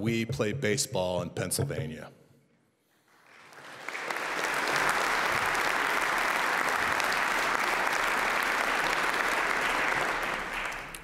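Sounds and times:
audience applauding: 3.1s - 11.0s.

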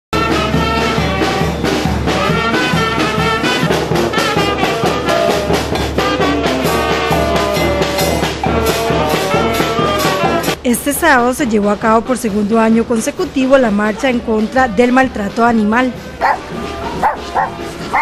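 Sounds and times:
bass drum and snare beat: 0.2s - 10.6s
brass band playing: 0.2s - 10.6s, 12.4s - 18.0s.

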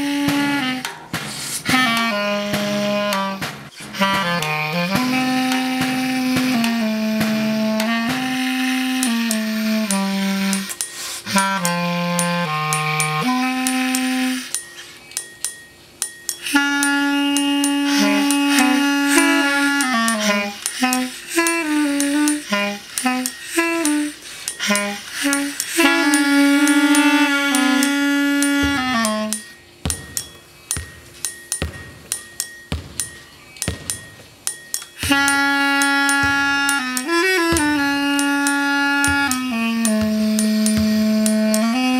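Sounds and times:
clarinet playing: 0.0s - 15.0s, 16.4s - 41.9s
snare drum strokes: 0.0s - 15.0s, 16.4s - 41.9s
snare drum taps: 28.6s - 34.3s.

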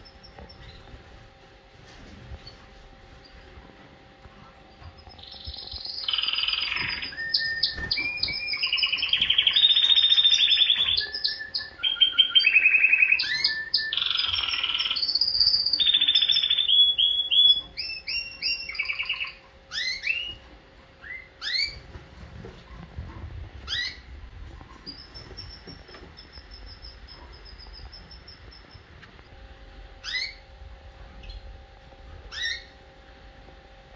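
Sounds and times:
canary singing trills: 0.0s - 1.2s, 4.8s - 20.4s, 21.0s - 21.8s, 23.6s - 29.2s, 30.0s - 30.5s, 32.3s - 32.8s.

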